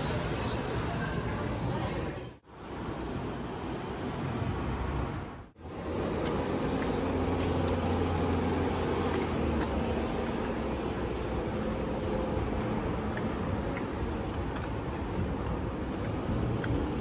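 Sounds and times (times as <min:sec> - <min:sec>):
city background noise: 0:00.0 - 0:17.0
low engine-like hum: 0:05.6 - 0:17.0.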